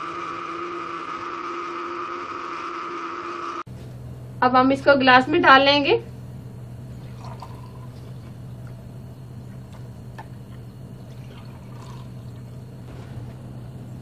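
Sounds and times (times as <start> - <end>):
steady low hum: 0.0 - 14.0
milkshake pouring into glasses: 7.0 - 8.8, 9.4 - 12.8.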